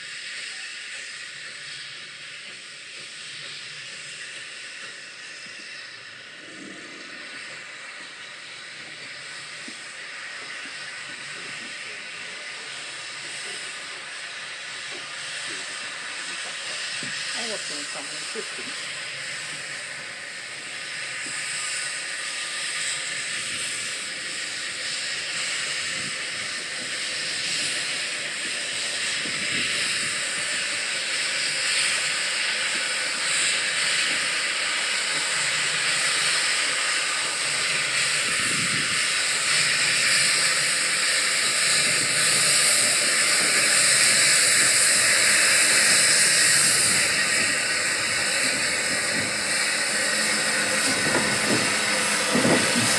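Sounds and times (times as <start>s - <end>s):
steam hissing from locomotive: 0.0s - 52.9s.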